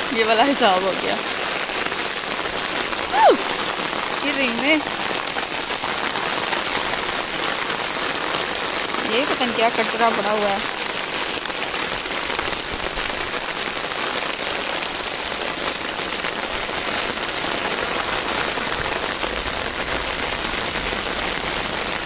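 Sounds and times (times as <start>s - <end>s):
heavy rain pattering on water: 0.0s - 22.0s.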